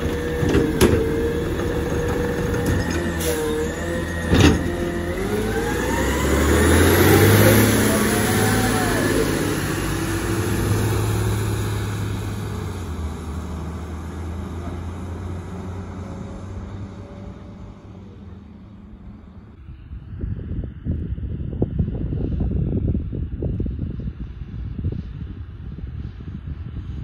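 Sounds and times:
garbage truck driving past: 0:00.0 - 0:19.5.

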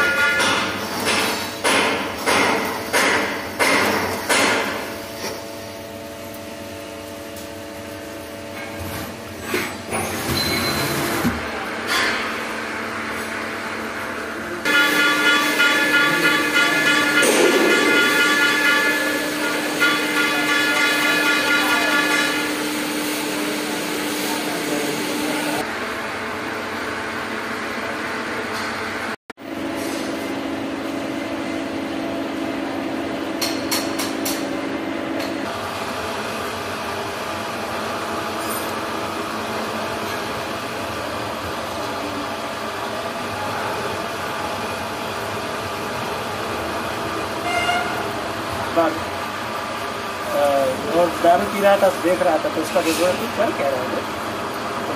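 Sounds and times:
high machine whine: 0:09.9 - 0:54.9
machine hum: 0:12.4 - 0:33.6
lathe cutting metal: 0:14.7 - 0:25.6.

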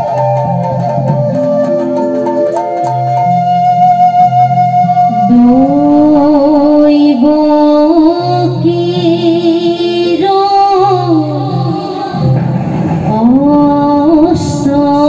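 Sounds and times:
woman singing devotional song: 0:05.2 - 0:12.5, 0:13.1 - 0:15.0.

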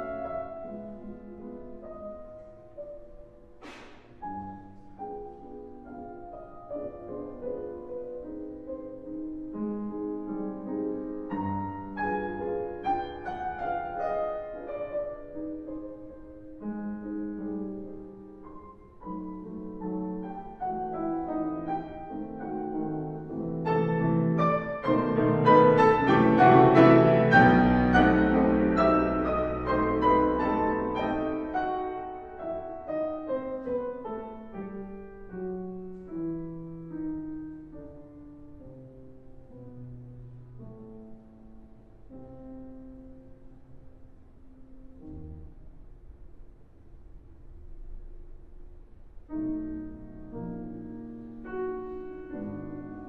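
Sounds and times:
slow classical piano music: 0:00.0 - 0:53.0.

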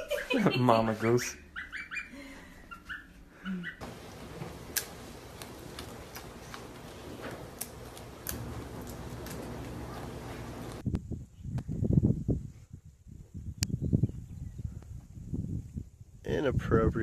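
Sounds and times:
animal crunching food: 0:03.8 - 0:10.8.

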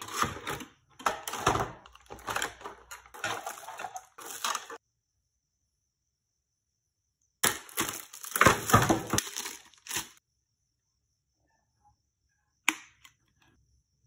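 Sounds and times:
plastic packaging crinkling: 0:00.0 - 0:04.8, 0:07.4 - 0:10.2.

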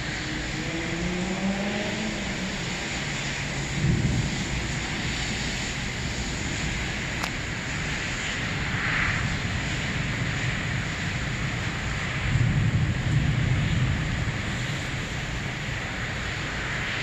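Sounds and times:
low rumble: 0:00.0 - 0:07.8
heavy rain hissing: 0:00.0 - 0:17.0.

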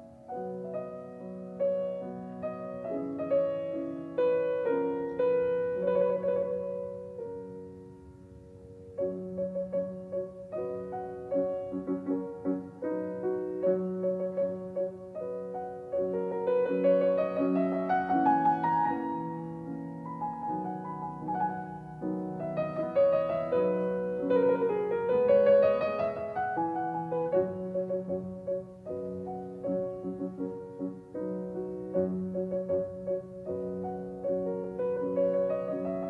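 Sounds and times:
slow piano music: 0:00.0 - 0:36.0.

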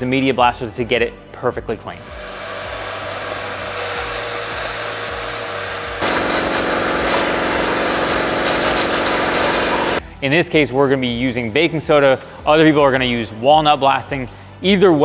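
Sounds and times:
shop vacuum whining: 0:02.0 - 0:10.0
compressed-air blaster hissing: 0:06.0 - 0:10.0.

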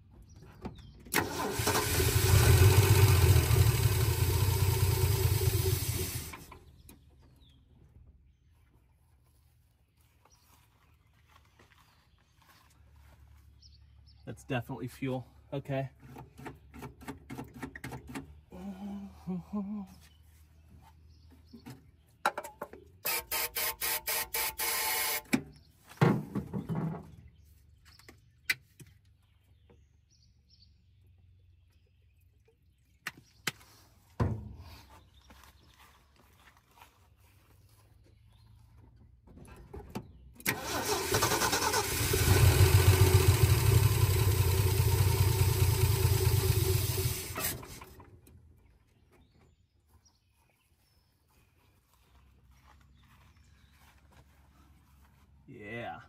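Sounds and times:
engine cranking on starter: 0:01.1 - 0:06.7, 0:40.4 - 0:48.2.

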